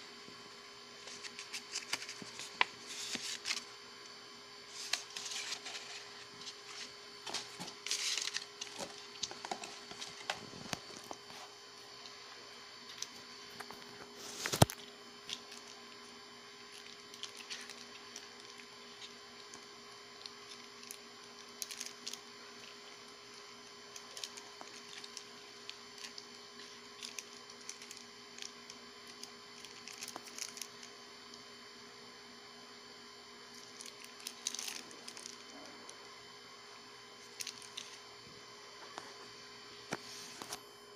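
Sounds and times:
faint steady hum: 0.0s - 40.9s
clicks and rustles of handling: 1.0s - 3.7s, 4.7s - 12.2s, 12.9s - 31.4s, 33.5s - 36.0s.

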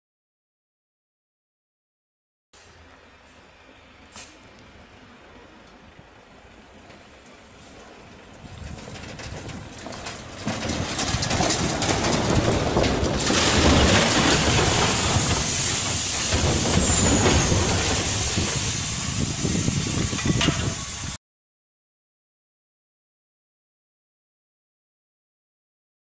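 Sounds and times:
rocks tumbling and crashing: 8.6s - 18.7s
loud steady hiss: 13.4s - 21.2s.

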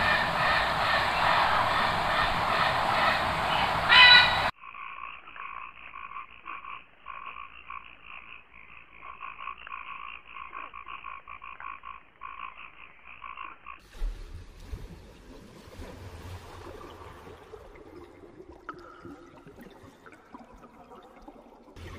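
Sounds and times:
bird-like call: 0.0s - 4.6s
frogs calling: 0.0s - 13.8s
dense wildlife noise: 0.0s - 13.9s.

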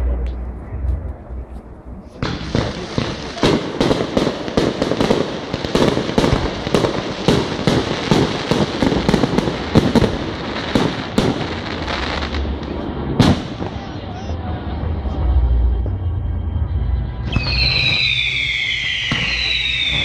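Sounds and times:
fireworks bursting with bangs: 2.2s - 15.0s, 17.2s - 20.0s.

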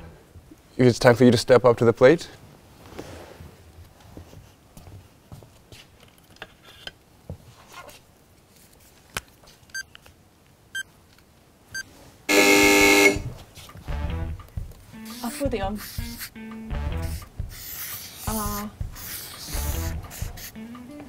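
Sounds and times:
horn-like buzzer: 12.3s - 13.3s
marker clicks and shuffling: 15.1s - 16.3s, 17.1s - 20.5s.

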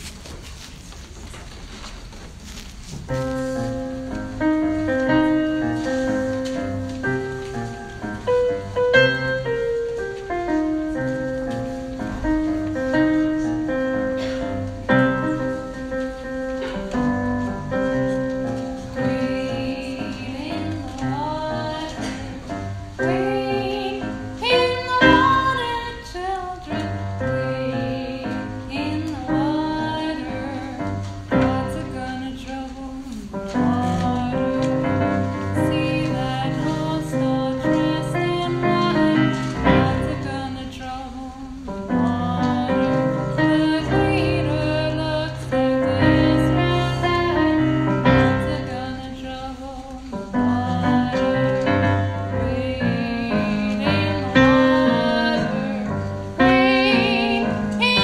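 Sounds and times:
piano accompaniment: 1.3s - 58.0s
woman singing: 18.9s - 58.0s.

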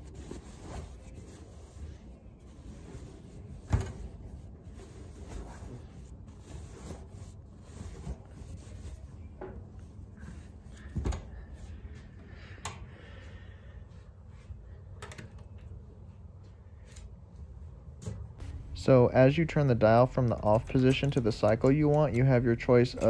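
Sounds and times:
laundry rustling: 0.0s - 12.0s.

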